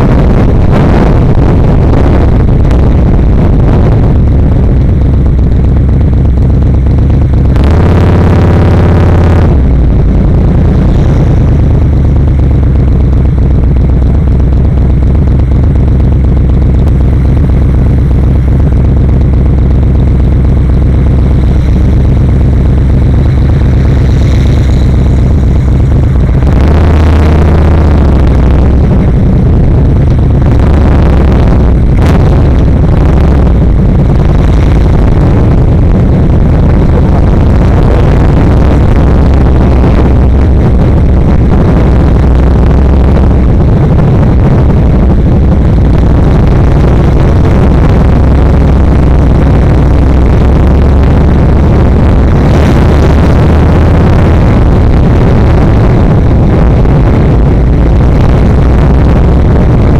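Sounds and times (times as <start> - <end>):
motorcycle engine running: 0.0 - 59.9
rush of noise: 0.0 - 59.9.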